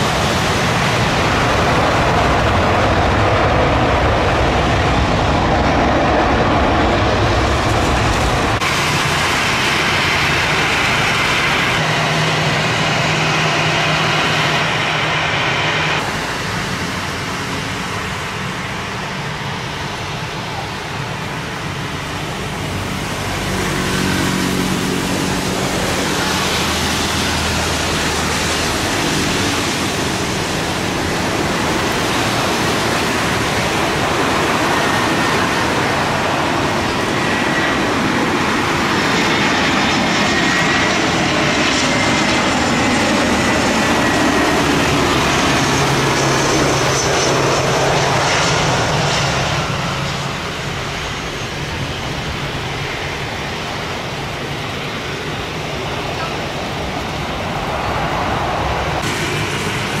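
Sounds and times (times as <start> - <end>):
jet engines roaring overhead: 0.0 - 60.0
heavy rain hissing: 54.4 - 60.0.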